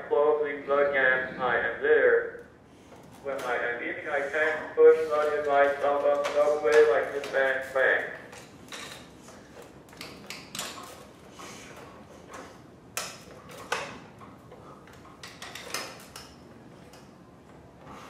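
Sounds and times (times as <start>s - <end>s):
mounting arm joints clicking: 8.3s - 11.2s, 11.8s - 17.7s.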